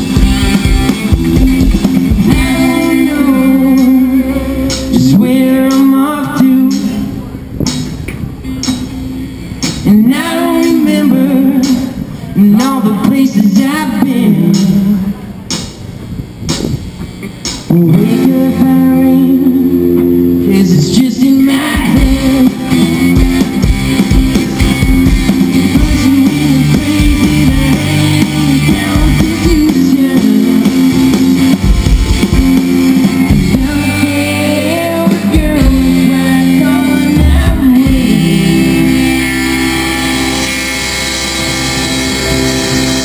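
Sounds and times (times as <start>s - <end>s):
live band playing amplified music: 0.0s - 43.0s
person singing: 2.2s - 7.3s, 9.8s - 15.3s, 17.7s - 23.4s, 25.4s - 31.2s, 33.3s - 39.4s.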